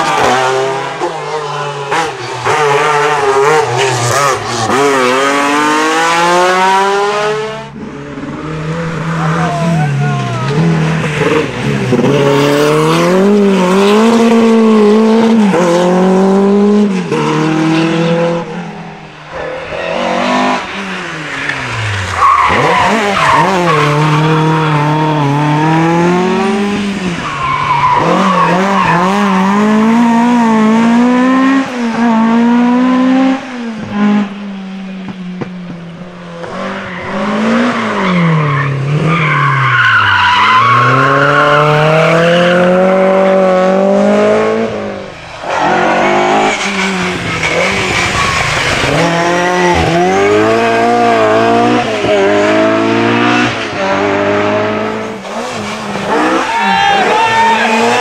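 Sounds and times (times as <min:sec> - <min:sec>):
rally car engines revving: 0:00.0 - 0:58.0
tyre squeal: 0:45.4 - 0:50.4.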